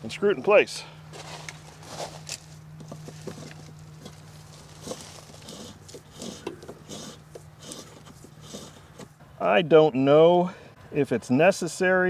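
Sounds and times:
steady low hum: 0:00.0 - 0:12.0
cable rustling and scraping: 0:01.1 - 0:09.2.

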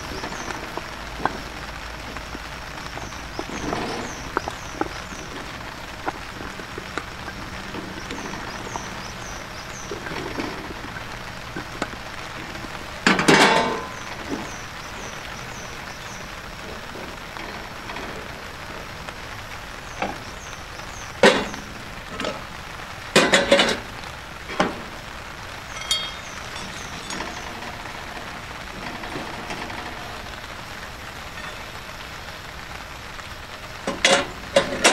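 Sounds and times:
heavy rain hissing: 0:00.0 - 0:34.9
food pieces clattering in pan: 0:25.7 - 0:27.6.

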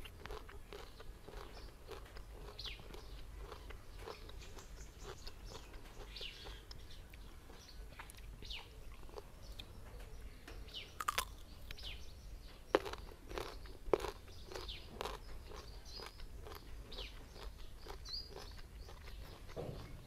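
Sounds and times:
crunchy bite into fruit: 0:00.0 - 0:06.8, 0:11.0 - 0:11.8, 0:12.7 - 0:20.0
chewing crisp raw mango: 0:00.0 - 0:09.8, 0:11.0 - 0:12.0, 0:12.7 - 0:20.0.

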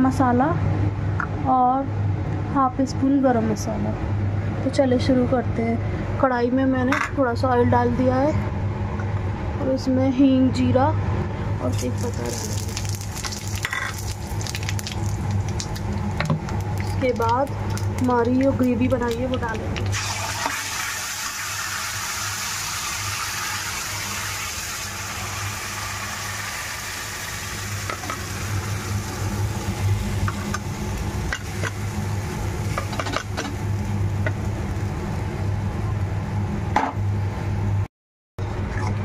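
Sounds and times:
steady low hum: 0:00.0 - 0:20.5, 0:24.9 - 0:39.0
oil and spices sizzling: 0:11.6 - 0:36.2.

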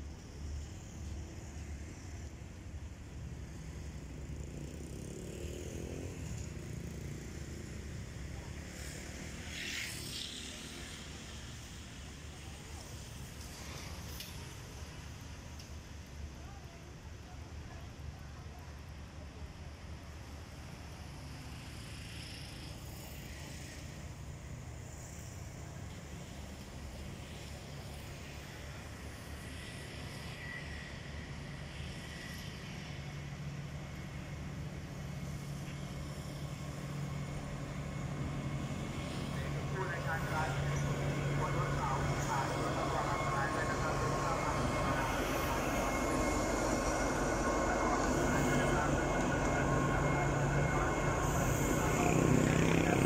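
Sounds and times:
distant diesel locomotive rumble: 0:00.0 - 0:53.0
distant engine rumble: 0:33.5 - 0:53.0.

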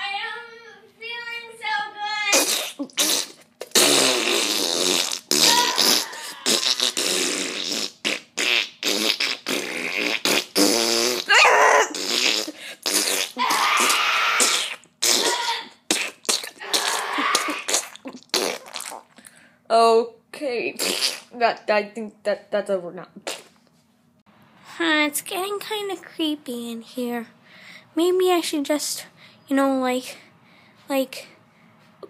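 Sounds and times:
fart noises: 0:02.3 - 0:19.2, 0:20.8 - 0:21.4, 0:23.2 - 0:23.6.

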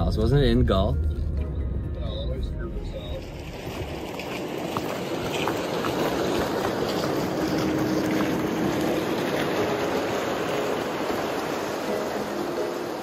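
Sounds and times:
plastic sleds scraping over ice: 0:03.0 - 0:12.9.

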